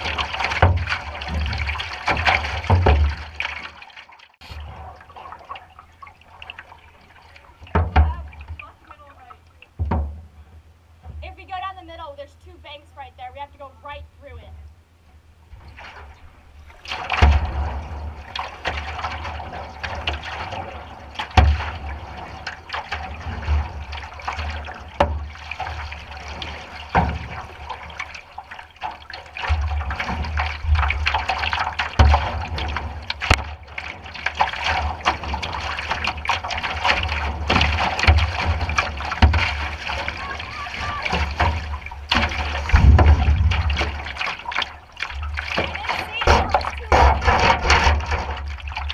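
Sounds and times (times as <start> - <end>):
river water rushing and splashing: 15.6 - 48.9
low rumbling: 29.5 - 48.9.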